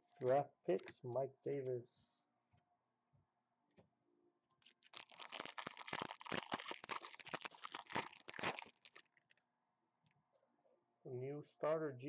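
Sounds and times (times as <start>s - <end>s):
foil wrapper tearing and crinkling: 4.6s - 9.4s.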